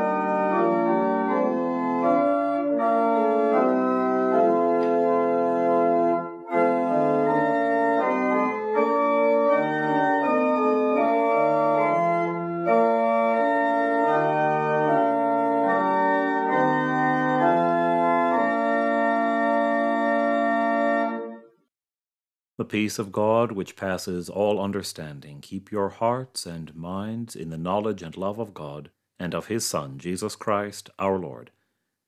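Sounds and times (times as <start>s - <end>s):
organ playing slow chords: 0.0s - 21.6s.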